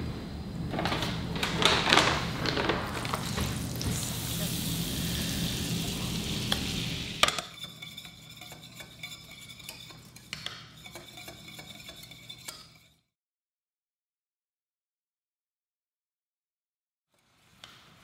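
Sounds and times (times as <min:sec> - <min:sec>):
butter sizzling in a pan: 0:03.2 - 0:12.6
whisk scraping against a pan: 0:07.2 - 0:13.1.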